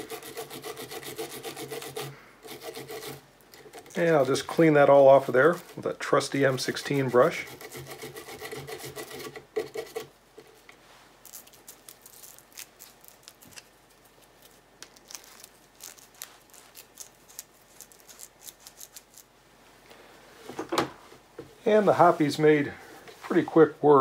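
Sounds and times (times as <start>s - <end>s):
brush scrubbing metal threads: 0.0s - 10.6s.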